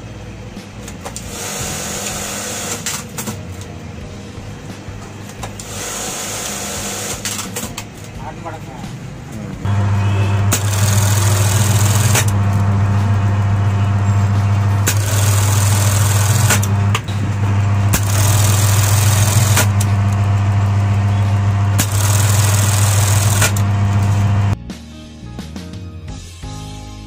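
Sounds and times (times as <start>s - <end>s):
sewing machine motor humming: 1.2s - 3.4s, 5.6s - 7.7s, 9.7s - 24.6s
sewing machine clack: 10.5s - 12.5s, 14.8s - 17.2s, 17.9s - 20.2s, 21.8s - 23.7s.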